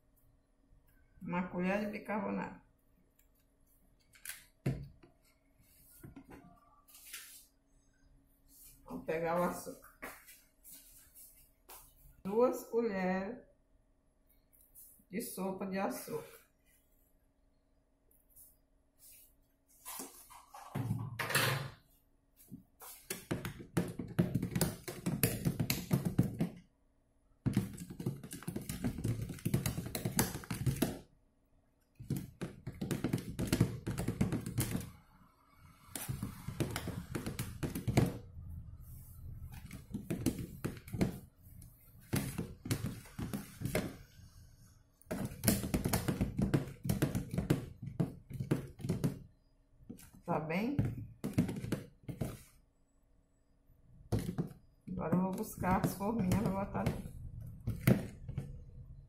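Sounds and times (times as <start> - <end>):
plastic spoon knocking in tub: 23.1 - 26.6, 27.4 - 31.1, 32.0 - 34.9, 36.0 - 38.3, 39.6 - 41.3, 45.1 - 49.3, 50.8 - 52.5, 54.1 - 58.7.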